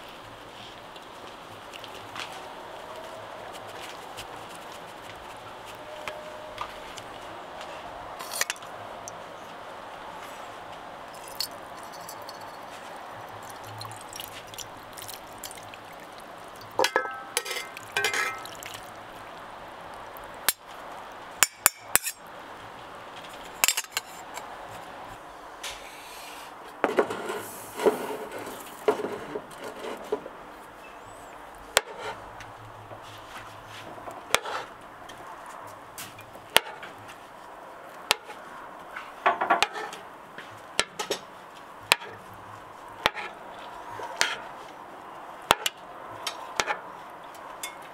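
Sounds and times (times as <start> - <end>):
metal utensils clinking on pots: 11.1 - 18.8, 21.4 - 22.2.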